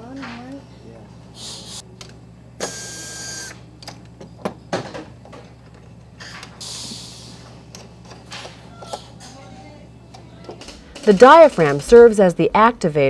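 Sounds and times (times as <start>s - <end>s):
electric screwdriver whine: 2.6s - 3.6s.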